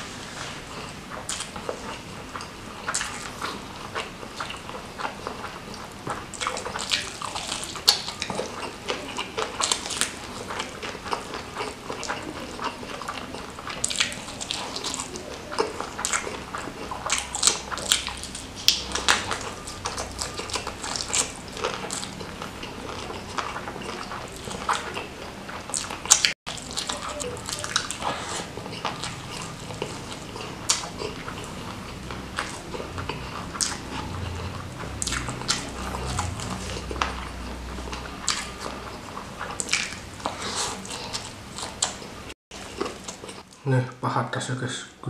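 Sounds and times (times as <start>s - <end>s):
wet chewing and lip-smacking: 0.4s - 43.6s.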